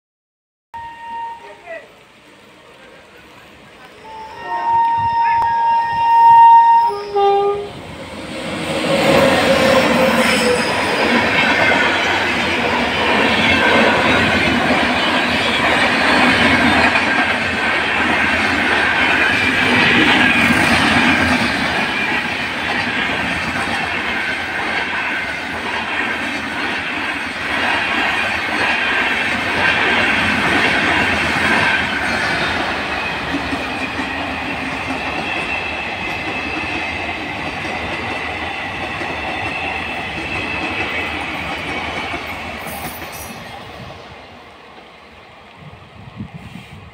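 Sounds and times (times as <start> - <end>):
train wheels rumbling on rails: 2.2 - 46.9
wheels squealing: 3.9 - 17.0.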